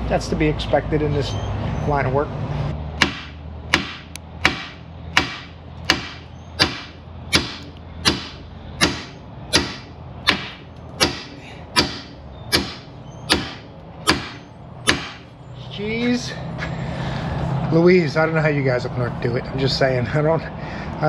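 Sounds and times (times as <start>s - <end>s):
hammer striking steel bolt: 3.0s - 15.3s.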